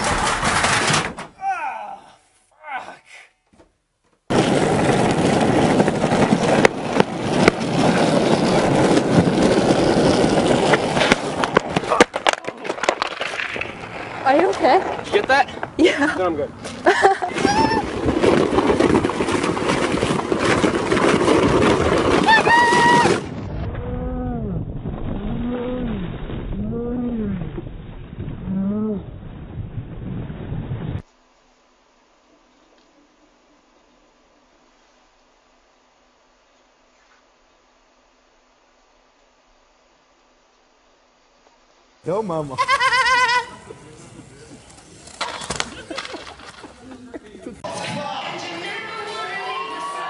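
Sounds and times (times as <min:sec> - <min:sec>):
skateboard wheels rolling on asphalt: 0:04.2 - 0:23.7, 0:41.4 - 0:50.0
skateboard clattering on road: 0:04.3 - 0:15.8, 0:17.3 - 0:23.3, 0:44.8 - 0:46.8.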